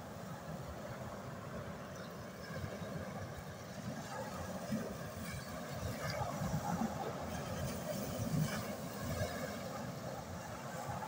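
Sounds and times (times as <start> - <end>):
waves washing over pebbles: 3.8 - 11.0.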